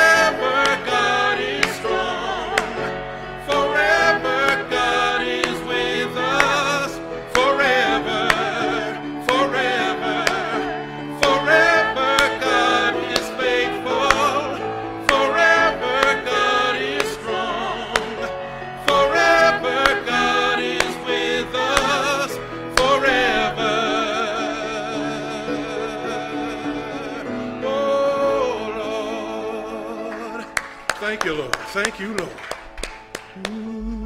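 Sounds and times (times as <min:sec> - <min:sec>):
man singing with vibrato: 0:00.0 - 0:30.6, 0:33.4 - 0:34.0
singer breathing: 0:03.0 - 0:03.4.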